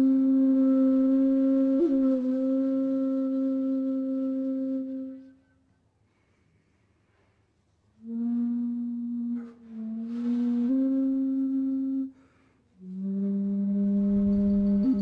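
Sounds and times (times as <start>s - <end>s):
music of long held notes: 0.0s - 5.5s, 8.0s - 12.2s, 12.8s - 15.0s.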